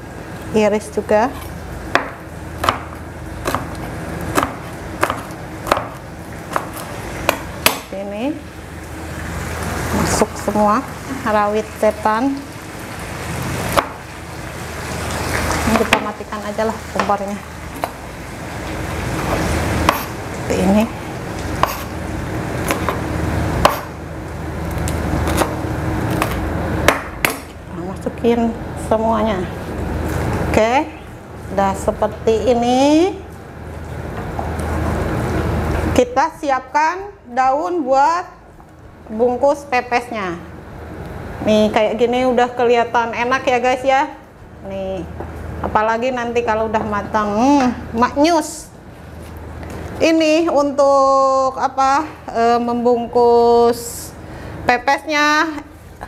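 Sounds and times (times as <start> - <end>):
knife chopping on wooden board: 1.4 - 7.9, 19.8 - 20.1, 21.6 - 21.9, 23.6 - 23.9, 25.2 - 27.6.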